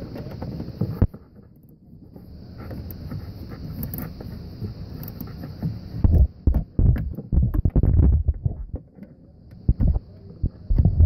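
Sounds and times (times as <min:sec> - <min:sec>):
ratchet wrench clicking on metal: 0:05.0 - 0:05.3.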